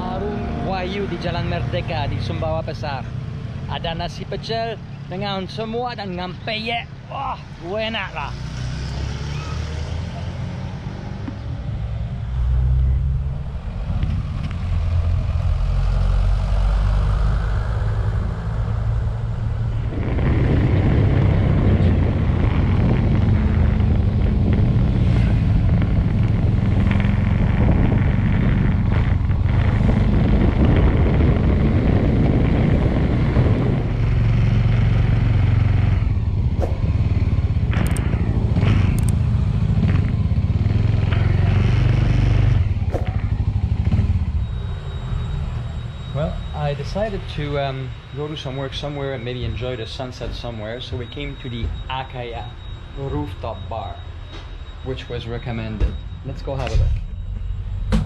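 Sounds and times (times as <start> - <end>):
wind rushing on microphone: 12.9 - 44.6
motorcycle engine running: 19.3 - 44.8.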